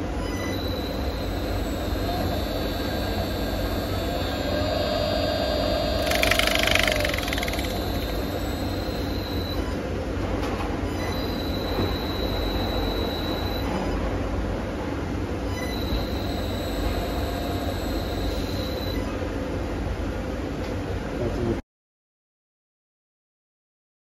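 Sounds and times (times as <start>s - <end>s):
high motor whine: 0.3s - 9.9s, 11.0s - 14.3s, 15.5s - 19.3s
electric motor humming: 3.3s - 9.0s.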